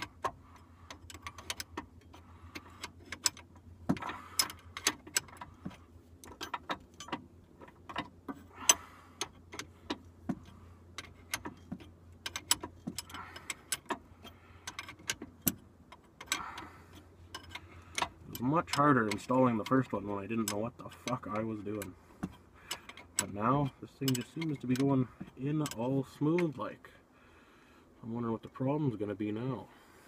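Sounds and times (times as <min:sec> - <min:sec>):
wrench clicking on metal nut: 0:11.0 - 0:21.9, 0:24.0 - 0:25.8.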